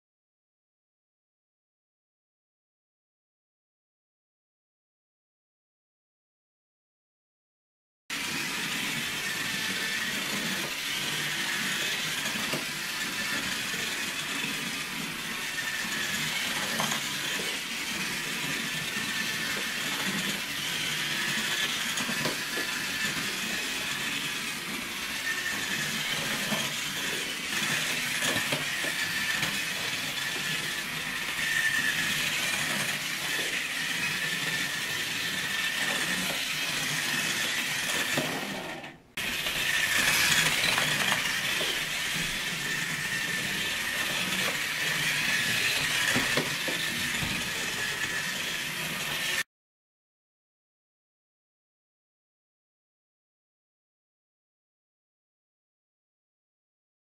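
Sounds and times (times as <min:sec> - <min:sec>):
electric motor whine: 0:08.2 - 0:49.4
toy car rattling in track slot: 0:37.1 - 0:48.2.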